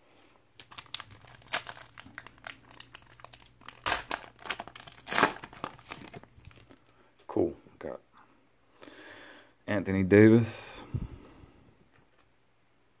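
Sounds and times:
foil wrapper crinkling: 0.5 - 6.9.

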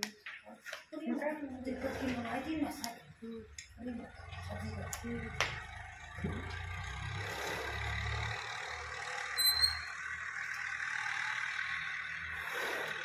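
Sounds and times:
high-pitched squeak: 9.4 - 10.0.

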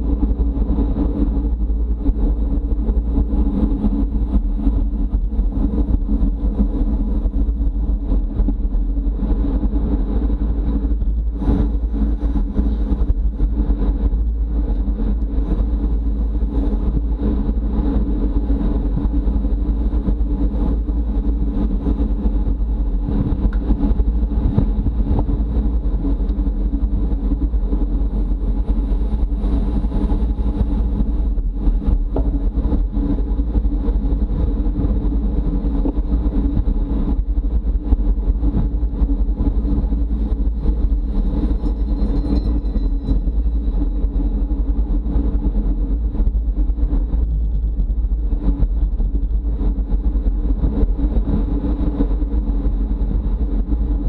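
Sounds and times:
hum of bicycle wheels: 0.0 - 54.0
wind rumble on microphone: 0.0 - 54.0.

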